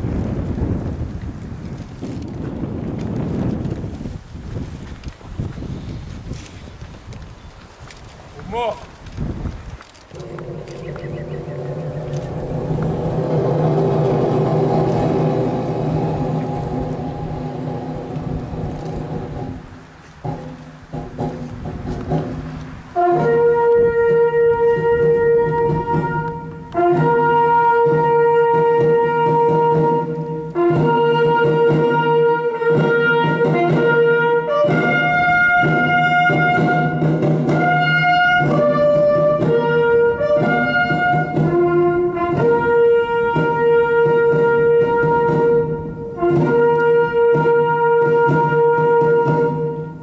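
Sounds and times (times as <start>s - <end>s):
brass ceremonial call: 10.1s - 20.6s, 23.0s - 50.0s
low sustained tones: 10.2s - 19.7s.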